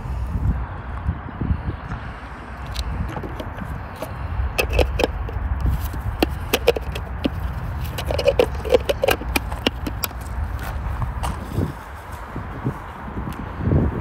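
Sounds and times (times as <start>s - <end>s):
plastic food chopper clacks: 3.1s - 10.2s.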